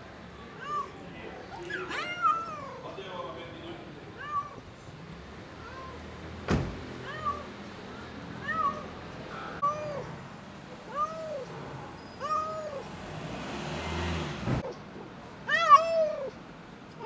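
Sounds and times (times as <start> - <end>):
cat meowing: 0.5 - 2.8, 4.2 - 4.6, 5.6 - 6.1, 7.0 - 7.5, 8.3 - 9.0, 9.6 - 10.2, 10.8 - 12.9, 15.4 - 16.4.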